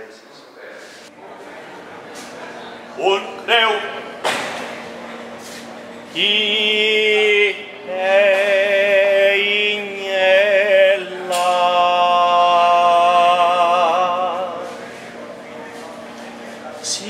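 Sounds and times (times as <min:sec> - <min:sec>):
man singing long notes: 0:06.1 - 0:14.8.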